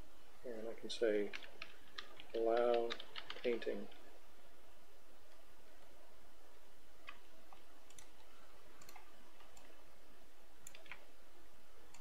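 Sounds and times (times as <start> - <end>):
low background hum: 0.0 - 12.0
computer mouse clicking: 7.0 - 9.8, 10.6 - 11.1.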